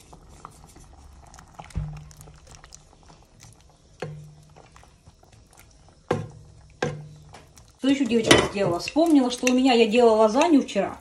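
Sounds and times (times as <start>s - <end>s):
stirring clicks: 0.2s - 11.0s
spatula knocking against pot: 4.0s - 4.4s, 6.1s - 7.5s.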